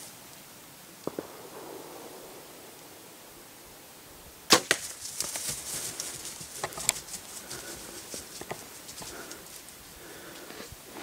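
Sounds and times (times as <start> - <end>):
deer running through grass: 4.0 - 11.0
arrow hitting: 4.4 - 5.1
bowstring crack: 4.4 - 9.6
faint ticks: 5.2 - 11.0.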